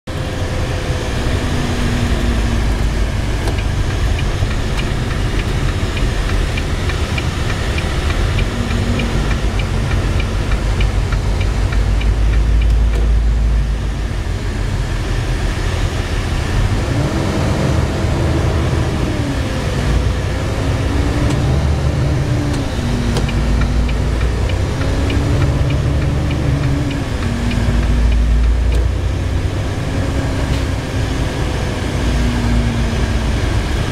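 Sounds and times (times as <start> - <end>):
vehicle engine and road rumble: 0.0 - 33.9
light regular ticking: 1.9 - 13.7, 20.7 - 29.1.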